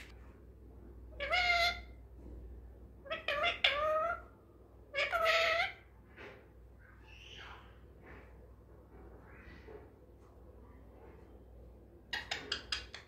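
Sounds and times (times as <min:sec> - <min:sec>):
parakeet calling: 0:01.2 - 0:02.0, 0:03.1 - 0:04.3, 0:04.9 - 0:05.8, 0:07.0 - 0:07.8
faint soft sounds: 0:05.9 - 0:12.1.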